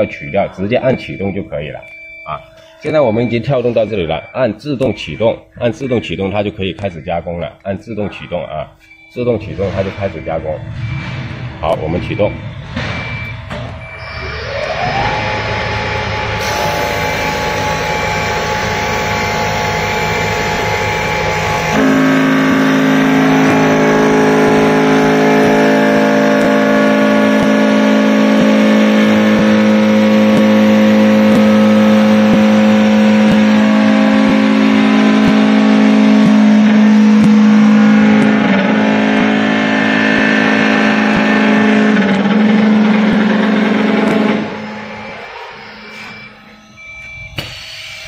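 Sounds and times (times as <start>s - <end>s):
lathe drone: 10.5s - 48.0s.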